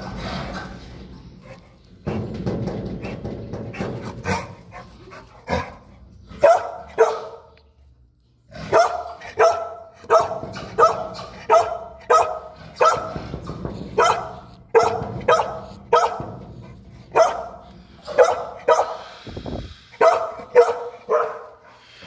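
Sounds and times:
dog barking: 6.4 - 7.5, 8.7 - 13.2, 14.0 - 16.3, 17.1 - 19.0, 20.0 - 21.6.

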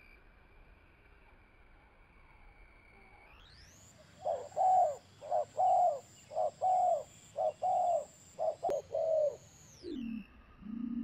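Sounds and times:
dove cooing: 4.2 - 11.0.

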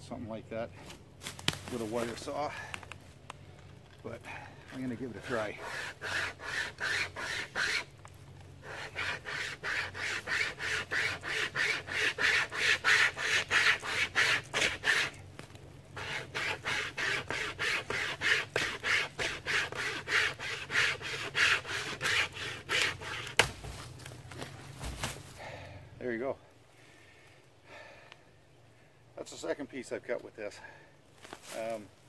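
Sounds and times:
wire saw cutting wood: 4.8 - 7.9, 8.6 - 15.2, 16.0 - 23.5.

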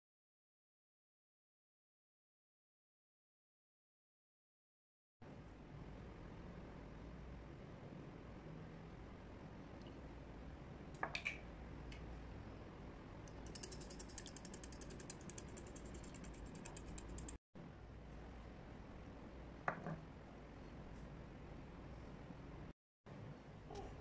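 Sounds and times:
whisk clicking against glass bowl: 13.4 - 17.4.

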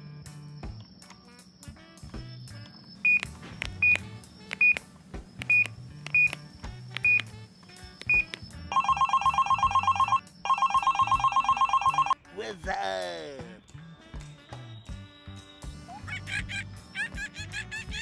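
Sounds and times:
soft background music: 0.0 - 18.0
toy telephone keypad beeps: 3.1 - 4.8, 5.4 - 6.4, 7.0 - 7.3, 8.0 - 12.2
toy phone trilling ringtone: 8.1 - 12.2.

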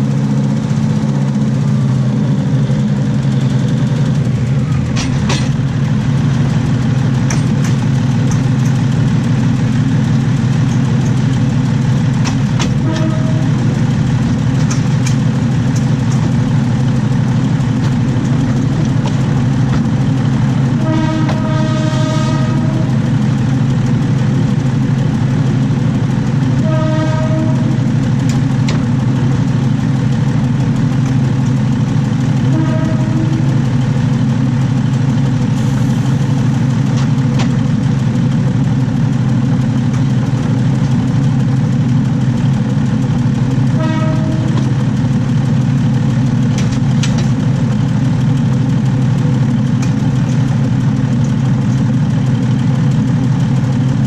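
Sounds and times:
train wheels rumbling on rails: 0.0 - 54.0
train horn: 12.6 - 14.1, 19.7 - 23.2, 26.5 - 28.8, 32.3 - 33.8, 43.6 - 45.0.

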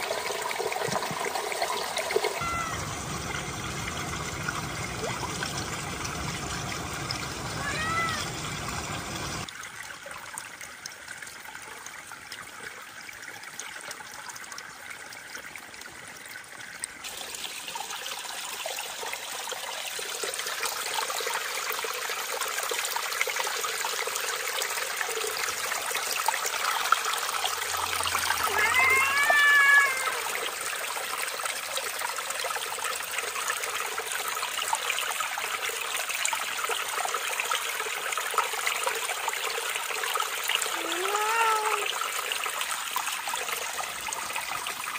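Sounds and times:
stream trickling over rocks: 0.0 - 44.9
cat meowing: 2.4 - 2.8, 7.6 - 8.3, 28.2 - 30.3, 40.8 - 41.9.

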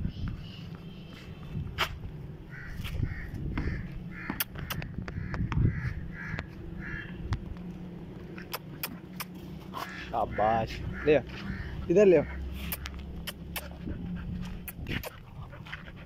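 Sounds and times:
crows cawing: 2.5 - 7.3, 9.7 - 12.9.

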